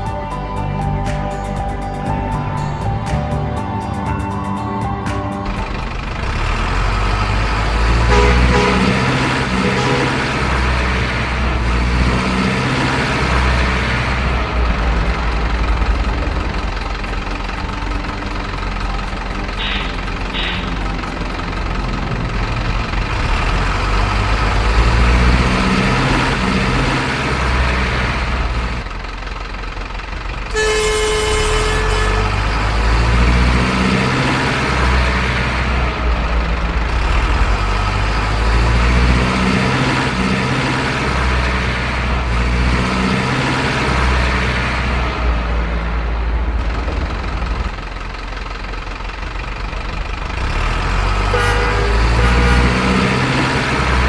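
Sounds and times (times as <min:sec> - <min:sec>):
truck engine running: 0:00.0 - 0:54.0
truck horn toot: 0:07.8 - 0:11.0, 0:19.6 - 0:20.8, 0:30.5 - 0:33.5, 0:51.2 - 0:53.6.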